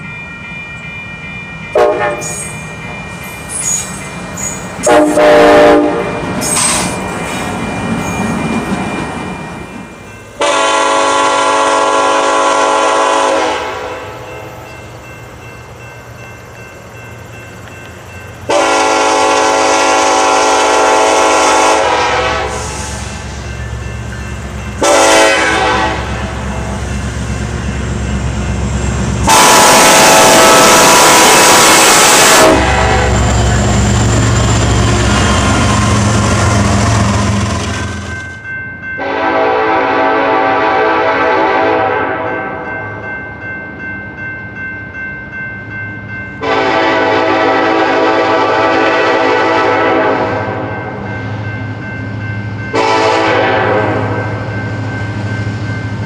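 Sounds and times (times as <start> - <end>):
low train rumble: 0.0 - 56.0
locomotive air horn blasts: 1.8 - 2.5, 4.8 - 6.1, 10.4 - 14.2, 18.5 - 23.2, 24.8 - 26.6, 29.2 - 33.4, 39.0 - 42.4, 46.4 - 50.7, 52.7 - 54.4.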